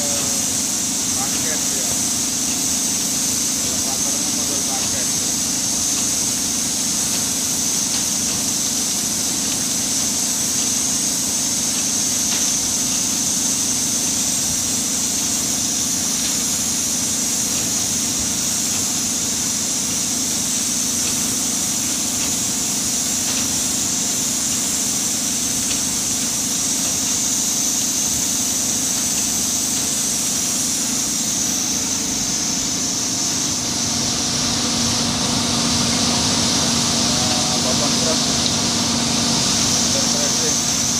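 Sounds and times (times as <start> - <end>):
high hiss: 0.0 - 40.9
mill machinery running: 0.0 - 40.9.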